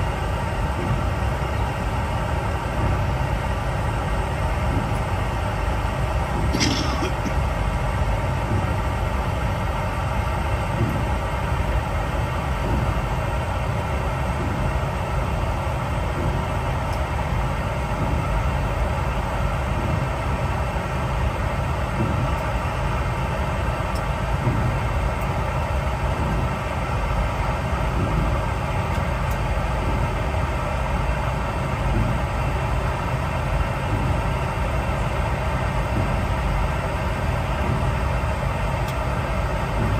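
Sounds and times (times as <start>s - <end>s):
airliner cabin rumble and hum: 0.0s - 39.9s.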